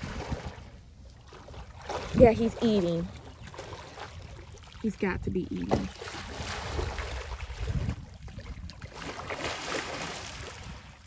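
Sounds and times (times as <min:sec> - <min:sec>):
wind on microphone: 0:00.0 - 0:00.8, 0:03.9 - 0:11.0
water splashing and churning: 0:00.0 - 0:11.0.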